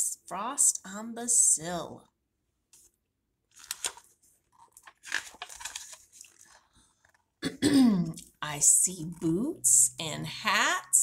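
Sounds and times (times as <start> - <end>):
book pages rustling: 2.7 - 7.3.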